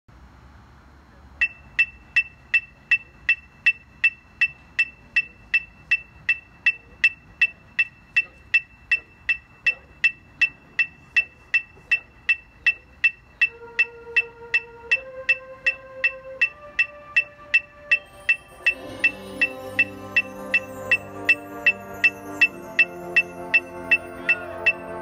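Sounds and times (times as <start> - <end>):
electronic metronome clicking: 1.4 - 25.0
held musical note: 13.4 - 25.0.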